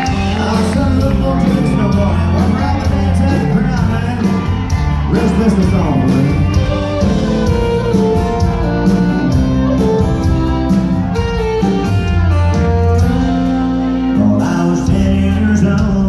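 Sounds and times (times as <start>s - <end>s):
person singing: 0.0s - 7.6s, 14.0s - 16.0s
live country band music: 0.0s - 16.0s.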